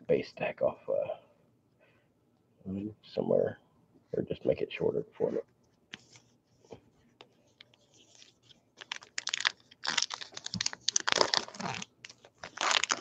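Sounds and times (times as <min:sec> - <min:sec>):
wrapper crinkling torn open: 0:08.1 - 0:13.0.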